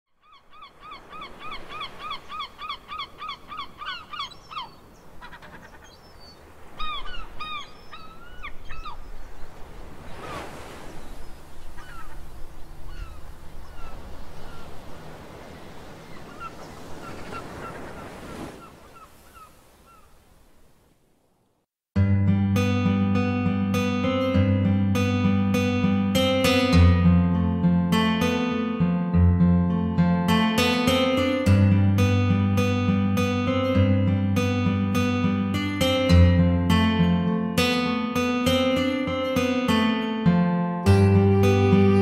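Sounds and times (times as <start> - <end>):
birds calling: 0.2 - 20.2
waves washing over shingle: 9.5 - 11.8, 13.9 - 19.8.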